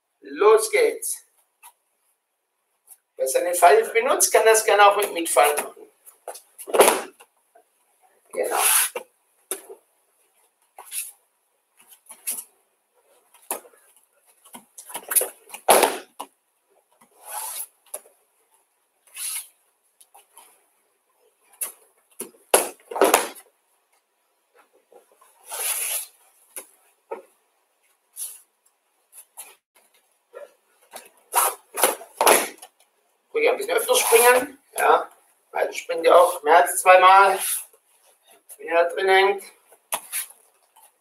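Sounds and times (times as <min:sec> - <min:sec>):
bare feet thumping on mats: 0:05.5 - 0:07.3, 0:14.4 - 0:16.3, 0:22.1 - 0:23.4, 0:30.9 - 0:32.7
cloth jacket rustling: 0:19.0 - 0:19.6, 0:24.5 - 0:27.0, 0:30.3 - 0:32.6.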